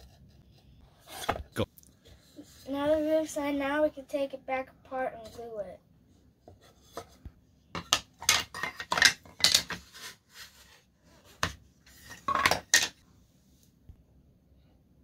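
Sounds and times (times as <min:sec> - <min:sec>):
wooden panels knocking on floor: 0:12.3 - 0:13.0.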